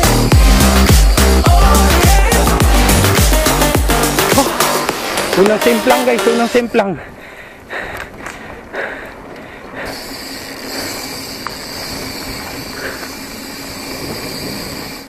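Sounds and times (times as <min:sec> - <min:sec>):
tyre noise on dirt: 0:07.1 - 0:15.0
bike knocking and rattling: 0:07.6 - 0:15.0.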